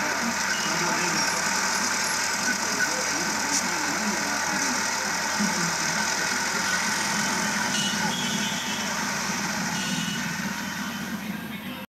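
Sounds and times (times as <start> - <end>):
crowd voices: 0.0 - 11.9
motor traffic: 0.0 - 11.9.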